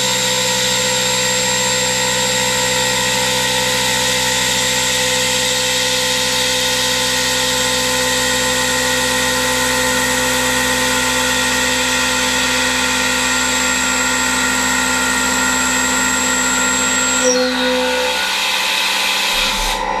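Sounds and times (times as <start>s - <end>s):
milling machine spindle whine: 12.2s - 20.0s
low machine hum: 19.3s - 20.0s.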